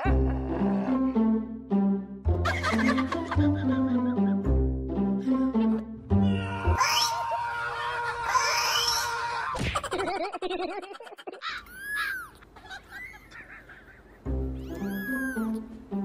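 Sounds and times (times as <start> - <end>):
music: 0.0 - 6.8, 14.2 - 16.0.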